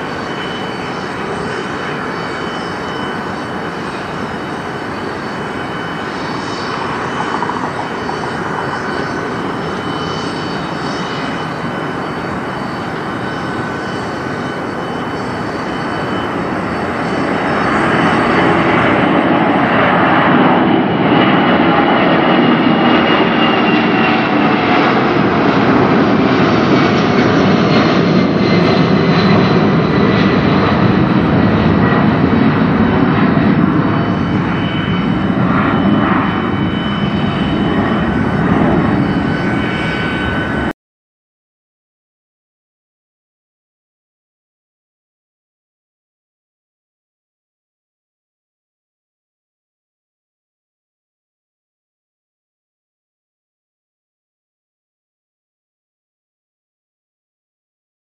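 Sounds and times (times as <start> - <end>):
jet engines roaring: 0.0 - 40.8.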